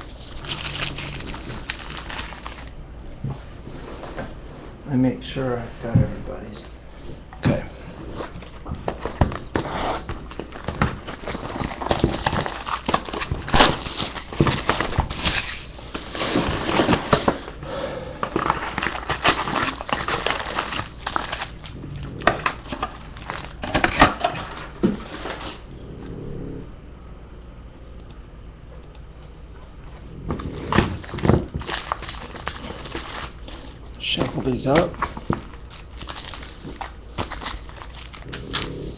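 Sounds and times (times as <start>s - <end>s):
foil wrappers crinkling and snapping: 0.0s - 3.1s, 7.5s - 25.7s, 29.9s - 38.9s.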